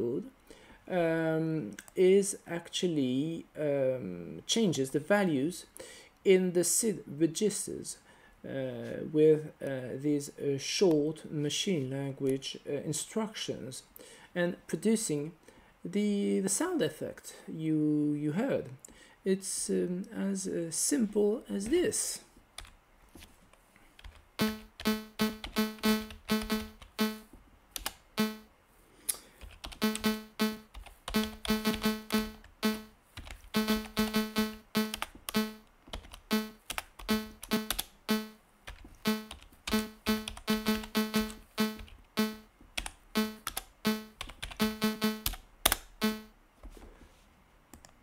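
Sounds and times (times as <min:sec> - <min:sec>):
keyboard typing clicks: 0:24.0 - 0:27.2, 0:29.5 - 0:46.3
low electronic beeps: 0:24.4 - 0:27.2, 0:28.2 - 0:28.5, 0:29.8 - 0:32.9, 0:33.6 - 0:35.6, 0:36.3 - 0:38.4, 0:39.1 - 0:42.5, 0:43.2 - 0:45.3, 0:46.0 - 0:46.3.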